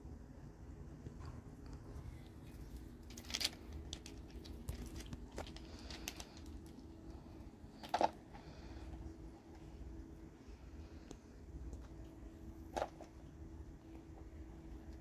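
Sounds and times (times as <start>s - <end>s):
faint steady hum: 0.0s - 15.0s
kittens scrambling over pebbles: 2.6s - 7.0s.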